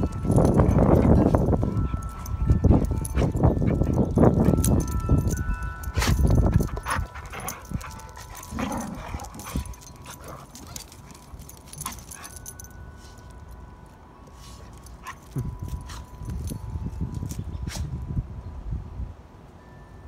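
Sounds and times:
dogs scuffling: 0.0 - 13.5.

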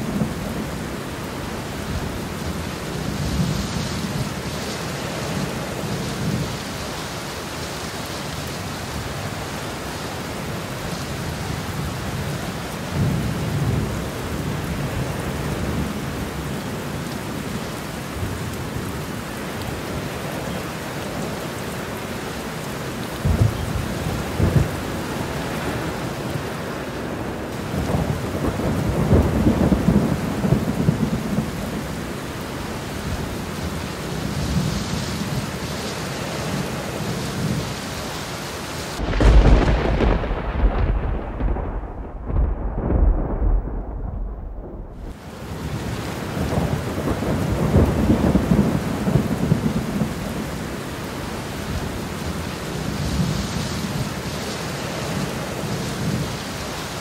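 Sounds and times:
steady rain: 0.0 - 57.0
thunder rumbling: 23.2 - 26.7, 27.3 - 35.6, 39.0 - 50.6
sharp thunder cracks: 39.0 - 45.2.

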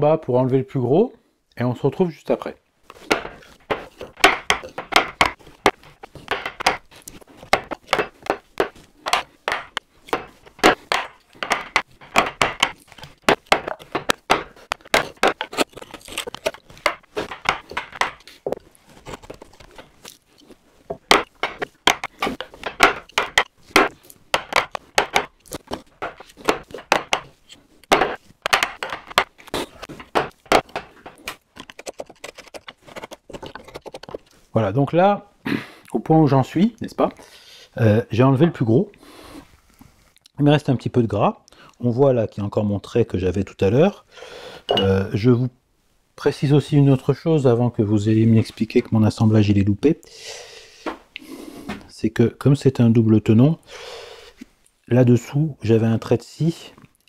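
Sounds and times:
mallet knocking on wood chisel: 3.1 - 6.8, 7.5 - 15.5, 20.9 - 25.3, 26.0 - 27.3, 27.9 - 29.3.

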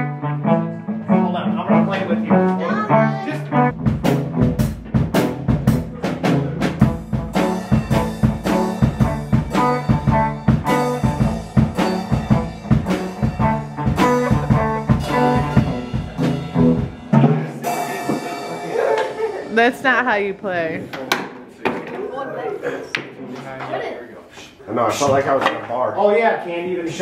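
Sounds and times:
low musical accompaniment: 0.0 - 20.8
drum hits and cymbal crashes: 3.8 - 20.0.

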